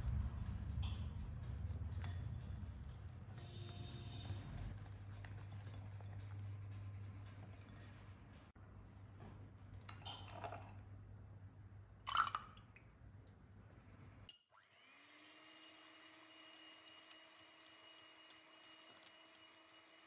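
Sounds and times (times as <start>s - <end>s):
small electric motor whining: 14.6s - 20.0s.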